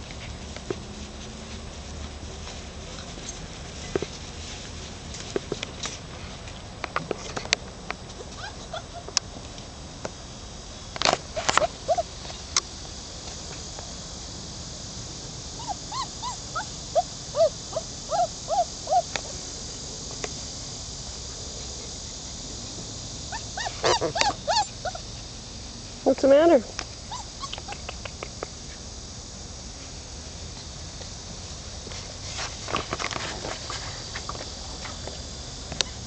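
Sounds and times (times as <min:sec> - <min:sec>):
steady high hiss: 0:00.0 - 0:36.0
puppies whimpering and yipping: 0:08.3 - 0:09.1, 0:11.4 - 0:12.1, 0:15.6 - 0:19.1, 0:23.3 - 0:25.1, 0:27.1 - 0:27.9.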